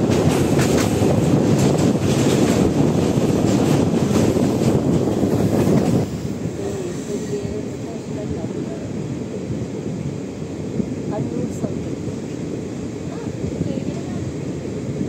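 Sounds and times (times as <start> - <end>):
train rumbling: 0.0 - 15.0
wind buffeting microphone: 0.0 - 15.0.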